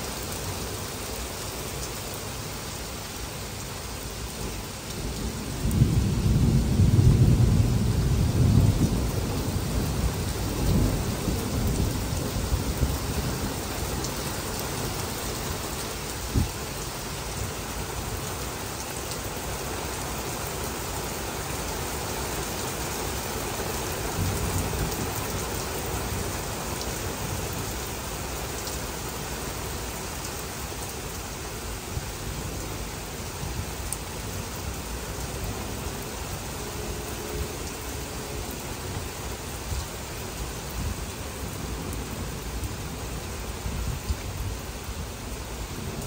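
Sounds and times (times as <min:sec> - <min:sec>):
heavy rain: 0:00.0 - 0:46.0
thunder rumbling: 0:05.0 - 0:14.1.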